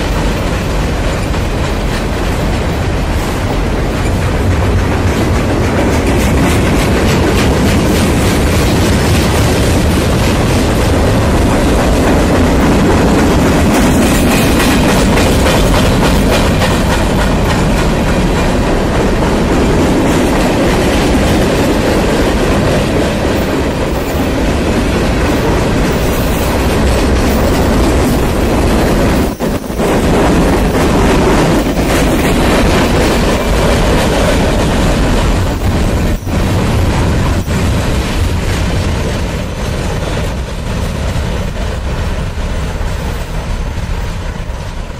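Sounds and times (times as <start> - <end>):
train wheels rumbling on rail: 0.0 - 44.9
wheels clickety-clack: 0.0 - 44.9.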